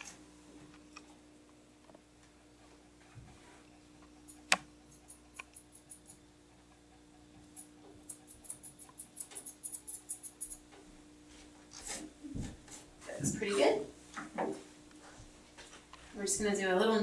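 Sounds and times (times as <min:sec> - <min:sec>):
faint steady hum: 0:00.0 - 0:17.0
scissors snipping fur: 0:04.3 - 0:06.2, 0:07.5 - 0:10.6.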